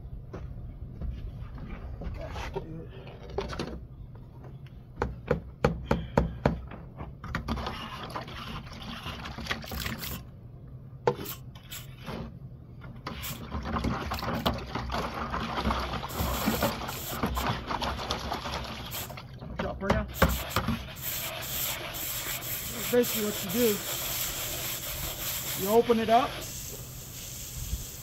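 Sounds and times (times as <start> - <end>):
plastic float scraping wet stucco: 7.4 - 10.3, 11.1 - 19.1, 20.2 - 26.5.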